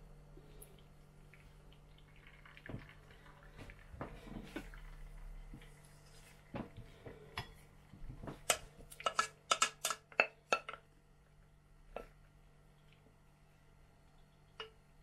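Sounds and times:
steel pot clinking and knocking: 0:08.5 - 0:10.8.

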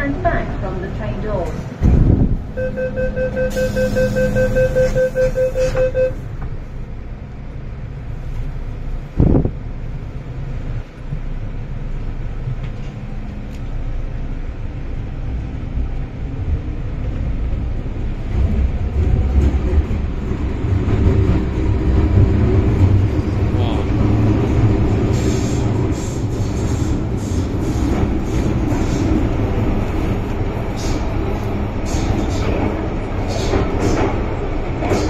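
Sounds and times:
train rumble: 0:00.0 - 0:35.0
door-closing beeps: 0:02.6 - 0:06.2.

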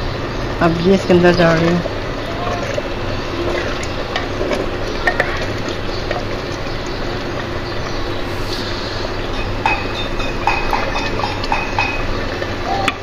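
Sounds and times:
low hum: 0:00.0 - 0:12.7
steady hiss: 0:07.5 - 0:11.3.

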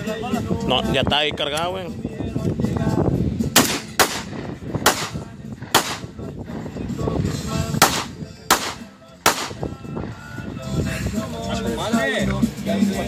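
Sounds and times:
handgun shots: 0:03.6 - 0:06.1, 0:07.8 - 0:09.6.

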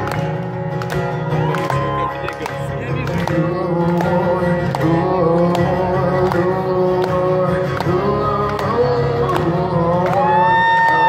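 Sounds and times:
acoustic guitar strumming: 0:00.0 - 0:11.0.

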